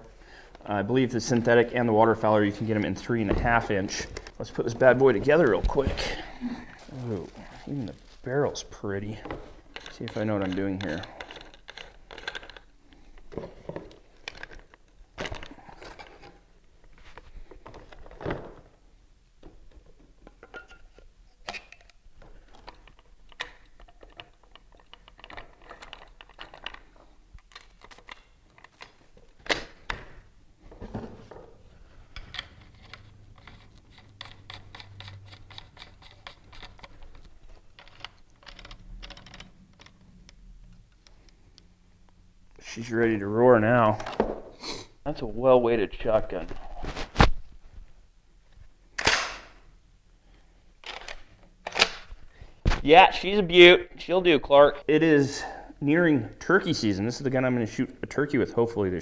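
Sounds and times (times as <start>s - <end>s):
shotgun parts clicking and knocking: 9.2s - 16.4s, 19.7s - 30.2s, 31.3s - 41.6s, 48.9s - 49.6s, 50.8s - 52.2s.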